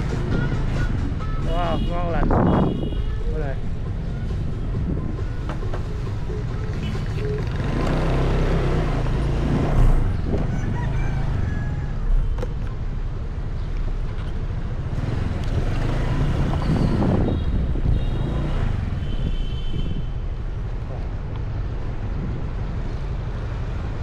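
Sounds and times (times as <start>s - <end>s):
road noise: 0.0s - 24.0s
vehicle engines rumbling: 0.0s - 24.0s.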